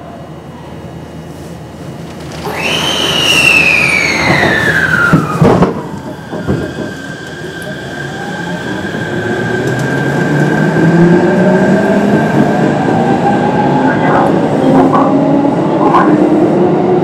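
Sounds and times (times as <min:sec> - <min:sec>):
electric train motor whine: 0:02.2 - 0:09.9
train knocks: 0:04.1 - 0:10.6.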